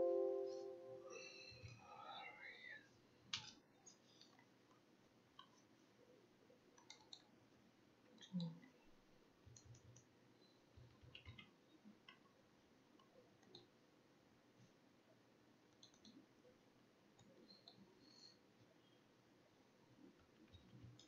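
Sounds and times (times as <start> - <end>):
mouse and keyboard clicks: 6.8 - 7.3, 10.8 - 12.2, 15.7 - 16.2.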